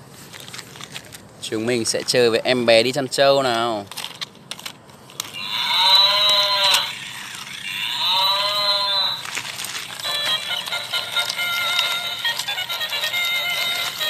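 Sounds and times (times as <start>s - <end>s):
tinny electronic tune: 5.4s - 9.3s
toy cow mooing: 5.4s - 9.4s, 10.0s - 14.0s.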